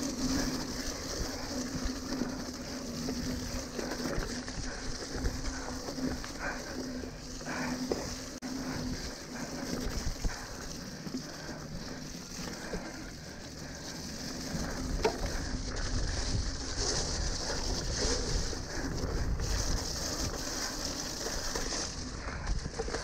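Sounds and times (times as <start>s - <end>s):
bike tyres hissing on mud: 0.0s - 23.0s
bike knocks and rattles: 14.5s - 23.0s.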